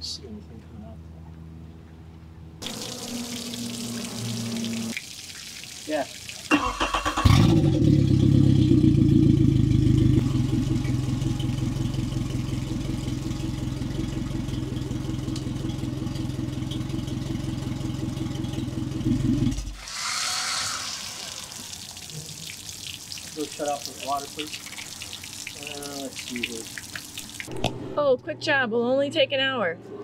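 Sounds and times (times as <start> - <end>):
outboard engine running: 6.6 - 19.8.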